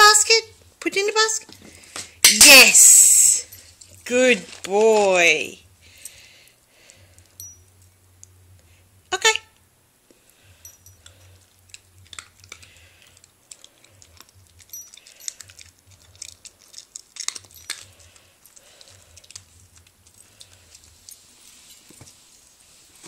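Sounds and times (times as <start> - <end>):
light metallic clinking: 6.9 - 8.3, 10.3 - 22.5
dog chewing: 11.0 - 22.4.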